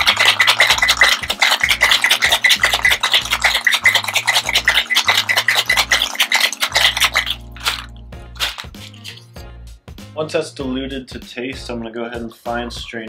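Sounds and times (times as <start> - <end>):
ice rattling in cocktail shaker: 0.0 - 9.4
background music beat: 0.0 - 13.0.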